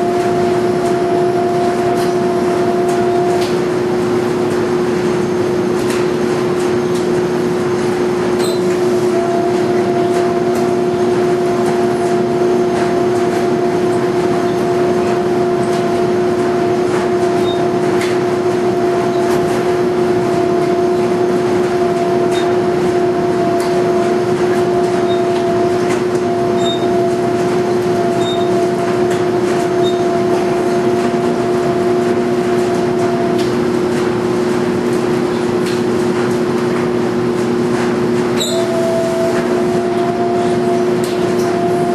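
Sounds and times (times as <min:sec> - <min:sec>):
high machine tone: 0:00.0 - 0:03.5, 0:08.3 - 0:17.9, 0:20.1 - 0:33.8, 0:38.4 - 0:41.9
laundry dryers running: 0:00.0 - 0:41.9
washing machine humming: 0:00.0 - 0:41.9.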